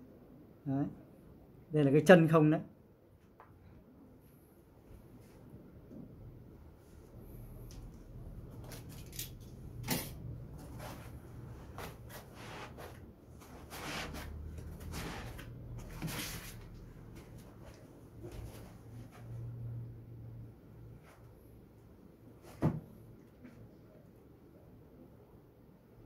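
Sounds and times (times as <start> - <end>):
foam sheet scraping and rustling: 10.6 - 16.7.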